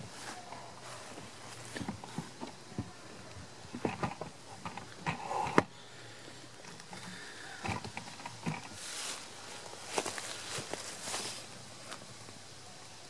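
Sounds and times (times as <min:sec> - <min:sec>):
footsteps crunching dry leaves: 0:00.0 - 0:01.8, 0:08.7 - 0:12.2
leaf rustling: 0:00.0 - 0:13.0.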